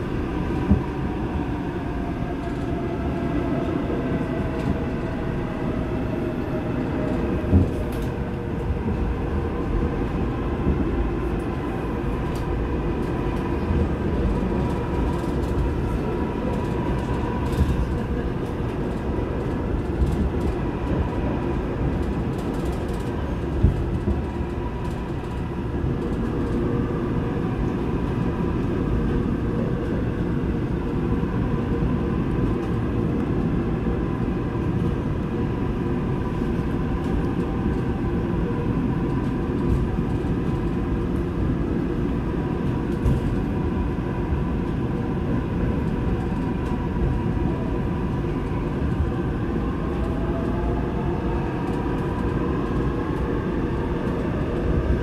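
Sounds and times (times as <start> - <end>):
train wheels rumbling on rails: 0.0 - 55.0.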